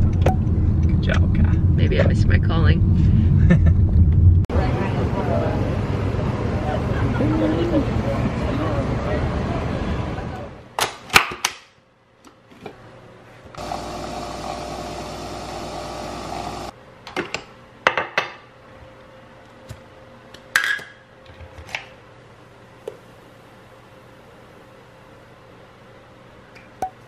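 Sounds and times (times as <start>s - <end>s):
espresso machine hum: 13.6s - 16.7s.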